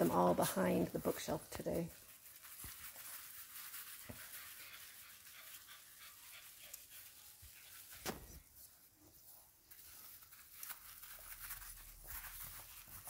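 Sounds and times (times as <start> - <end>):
puppy panting softly: 4.1 - 8.0.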